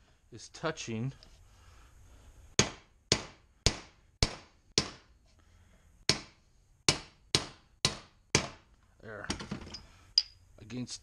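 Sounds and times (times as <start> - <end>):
hammer striking metal: 6.9 - 8.6.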